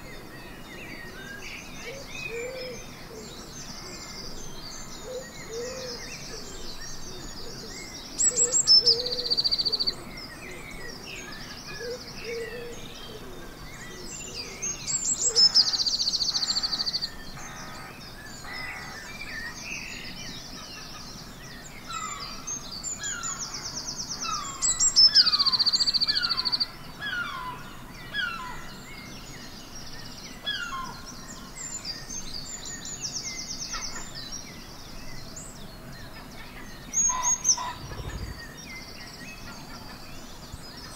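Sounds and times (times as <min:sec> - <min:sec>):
birds whistling and chirping: 0:00.0 - 0:40.9
loud fast trilling birdsong: 0:14.2 - 0:40.9
low repeated bird call: 0:20.6 - 0:40.9.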